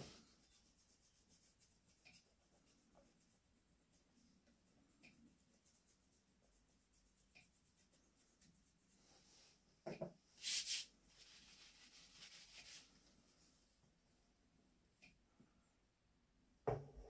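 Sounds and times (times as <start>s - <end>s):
short sharp hiss: 10.4s - 10.9s
scratching and rubbing on wood: 10.4s - 12.9s.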